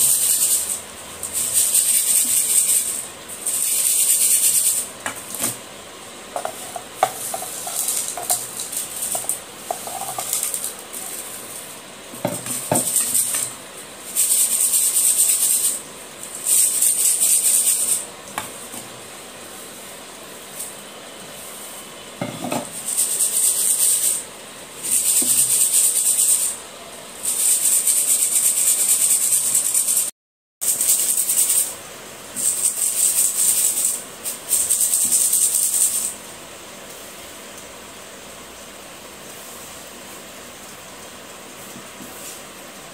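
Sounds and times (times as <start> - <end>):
stone pieces rattling in metal sieve: 0.0 - 5.5, 6.4 - 18.1, 22.6 - 24.2, 32.4 - 36.2.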